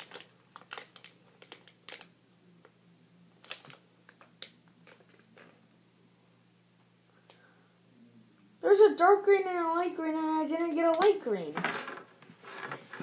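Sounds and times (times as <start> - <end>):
plastic packet crinkling: 0.0 - 2.1, 3.4 - 5.5
faint low hum: 0.0 - 13.0.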